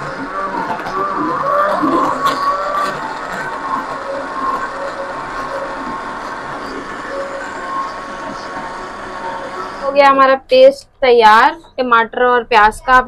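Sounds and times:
mixer-grinder running: 0:00.0 - 0:10.0.

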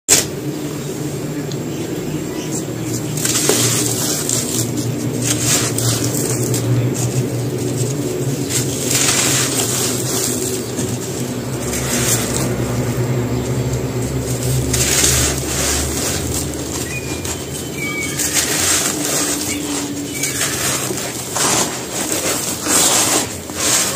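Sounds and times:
steady low hum: 0:00.1 - 0:23.9
gritty dust pouring: 0:02.9 - 0:23.9
dry cement crumbled by hand: 0:03.0 - 0:23.9.

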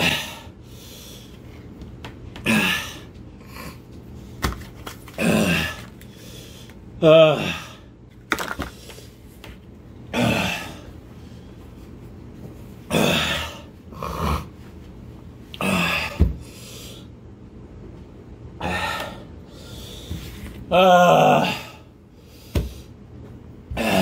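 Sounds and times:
man gasping and groaning: 0:05.2 - 0:05.9, 0:07.0 - 0:07.9.

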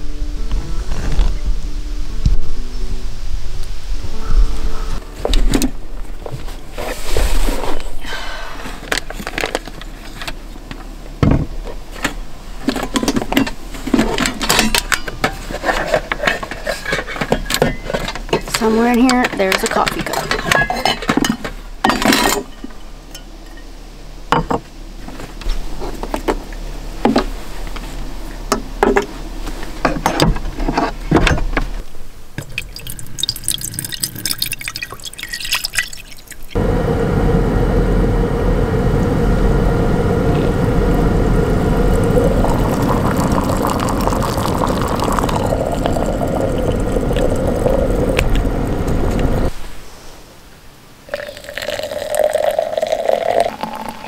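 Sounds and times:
water pouring into a kettle: 0:32.6 - 0:36.6, 0:41.5 - 0:49.5, 0:51.1 - 0:54.0.

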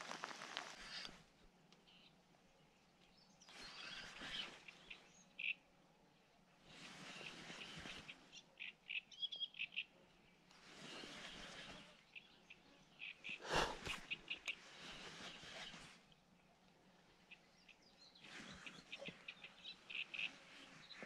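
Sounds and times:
small birds chirping: 0:00.0 - 0:21.0
soft hushing noise: 0:13.2 - 0:17.5.

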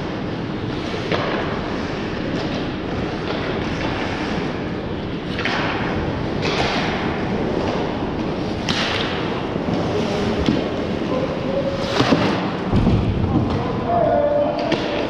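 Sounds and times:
skating rumble on ice: 0:00.0 - 0:15.0
hockey sticks and puck knocks: 0:00.7 - 0:04.4, 0:05.2 - 0:10.9, 0:11.8 - 0:13.7, 0:14.5 - 0:15.0.

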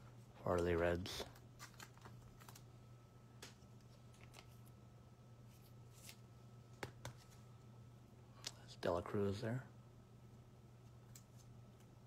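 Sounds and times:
faint room hum: 0:00.0 - 0:12.0
trading cards rustling: 0:00.4 - 0:04.8, 0:05.4 - 0:07.5.

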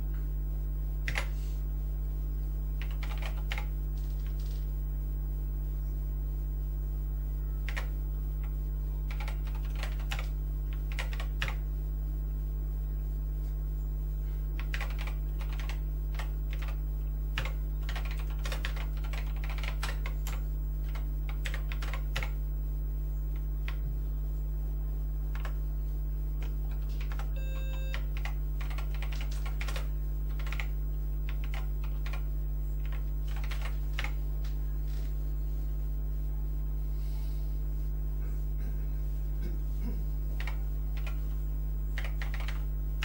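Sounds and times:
low electrical hum: 0:00.0 - 0:43.0
keyboard keys clicking: 0:02.8 - 0:04.6, 0:09.1 - 0:11.6, 0:14.6 - 0:16.8, 0:17.4 - 0:22.4, 0:26.4 - 0:30.7, 0:31.3 - 0:32.2, 0:32.8 - 0:34.5, 0:42.0 - 0:42.6
short electronic beep: 0:27.4 - 0:28.0.

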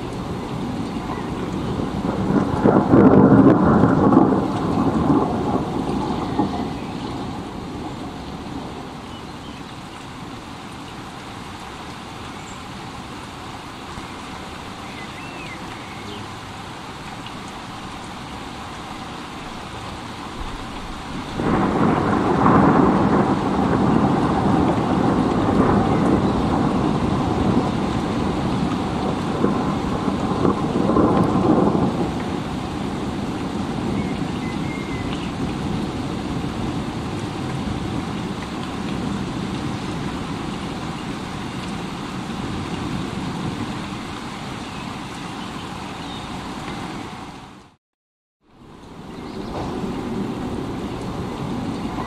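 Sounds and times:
rumble of thunder: 0:00.0 - 0:09.0, 0:20.3 - 0:43.8, 0:48.9 - 0:52.0
steady rain: 0:00.0 - 0:47.8, 0:48.4 - 0:52.0.

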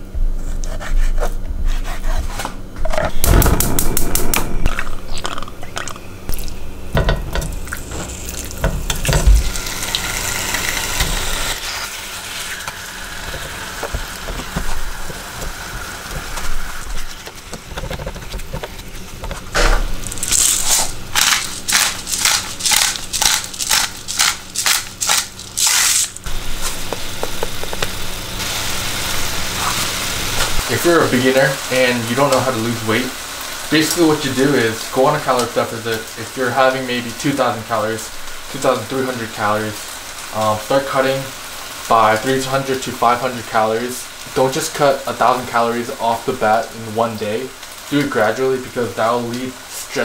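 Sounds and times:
chicken sizzling in a pan: 0:06.3 - 0:17.4, 0:20.0 - 0:50.0
seasoning shaker shakes: 0:20.0 - 0:28.6.

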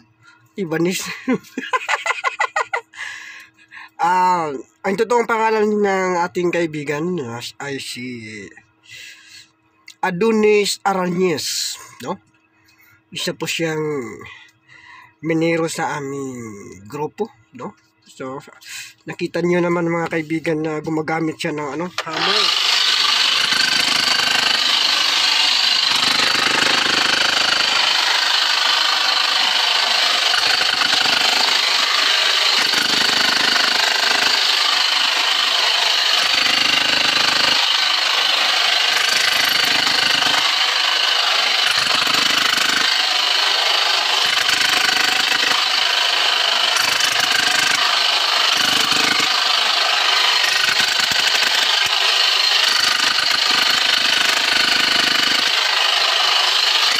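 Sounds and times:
jackhammer chipping into rock: 0:21.8 - 0:56.9.

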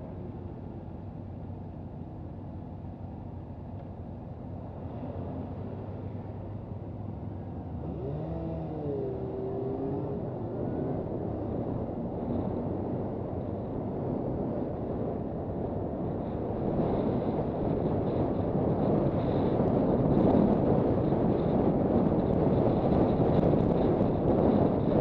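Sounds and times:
wind on microphone: 0:08.0 - 0:25.0.

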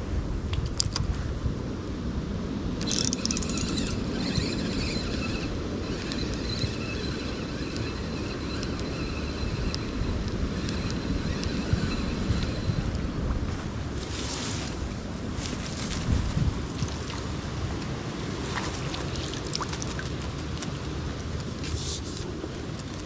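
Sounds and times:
wind buffeting microphone: 0:00.0 - 0:23.0
sharp clicks: 0:02.8 - 0:13.0
thin high whine: 0:02.8 - 0:15.0.

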